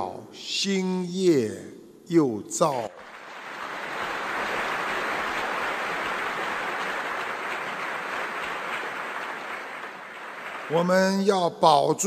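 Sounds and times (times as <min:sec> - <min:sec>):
large audience applauding: 0:03.0 - 0:11.4.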